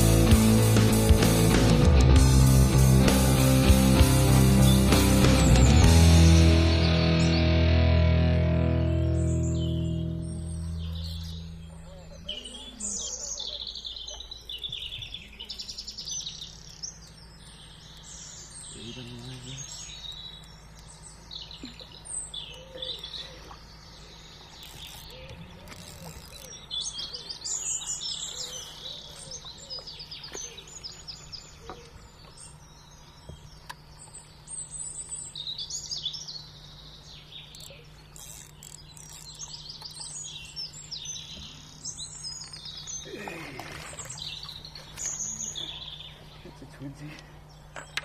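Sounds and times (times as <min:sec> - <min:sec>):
low hum: 0:00.0 - 0:13.1
small birds chirping: 0:00.0 - 0:48.0.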